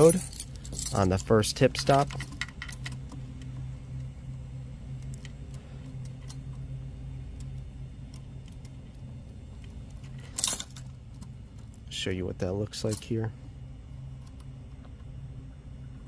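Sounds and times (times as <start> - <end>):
keys clinking and jangling: 0.0 - 3.2, 10.1 - 10.9, 12.8 - 13.1
steady low hum: 0.0 - 16.0.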